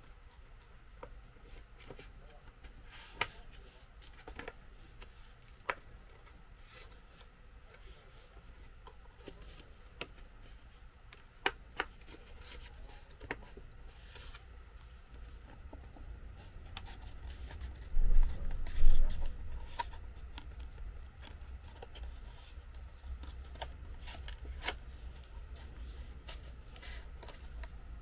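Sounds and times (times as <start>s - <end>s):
paper rustling while folded: 16.4s - 27.7s.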